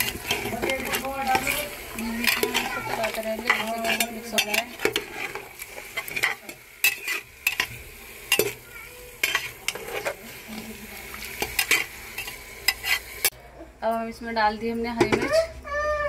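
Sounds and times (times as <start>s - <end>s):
metal spoon scraping pot: 0.0s - 8.6s, 9.2s - 10.6s, 11.2s - 13.3s
food sizzling in oil: 0.0s - 13.4s.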